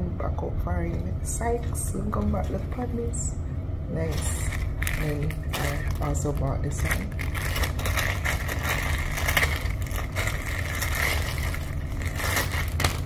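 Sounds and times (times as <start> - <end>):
low rumble: 0.0 - 13.0
plastic packaging rustling: 4.1 - 13.0.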